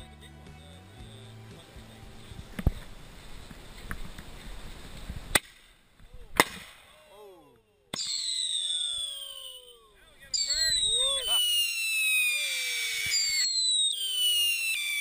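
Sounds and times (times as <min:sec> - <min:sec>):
firework bangs: 0:06.3 - 0:07.0, 0:07.9 - 0:15.0
firework whistle falling in pitch: 0:08.0 - 0:15.0.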